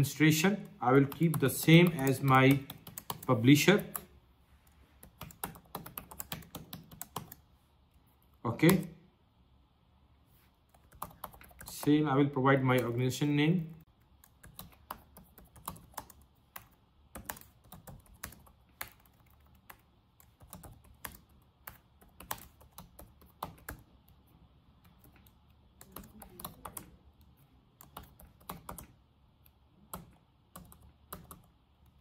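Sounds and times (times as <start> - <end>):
keyboard typing clicks: 1.0 - 4.1, 5.0 - 7.4, 13.8 - 23.9, 24.8 - 32.0.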